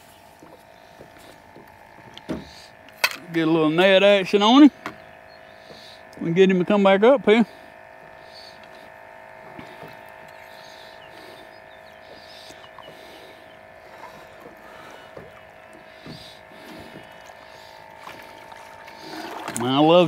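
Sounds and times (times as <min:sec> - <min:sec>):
electric motor humming: 0:00.0 - 0:20.0
faint water splashes: 0:12.6 - 0:20.0.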